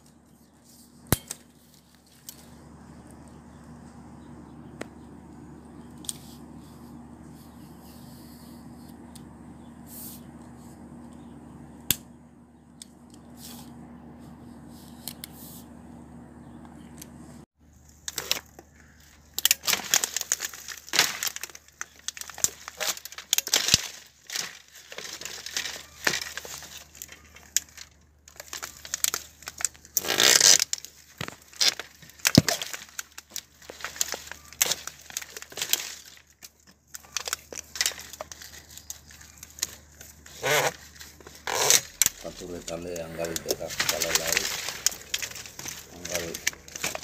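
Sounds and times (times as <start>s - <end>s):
loppers snapping bamboo stems: 1.1s - 2.5s, 11.9s - 12.1s, 18.0s - 47.0s.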